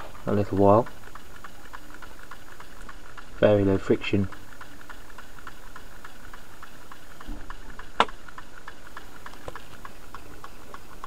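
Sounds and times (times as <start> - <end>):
small engine rapid ticking: 0.0 - 11.0
sharp click: 7.2 - 9.6.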